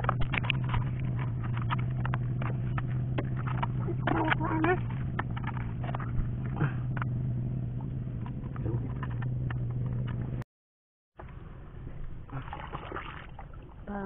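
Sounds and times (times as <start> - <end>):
steady low hum: 0.0 - 10.4.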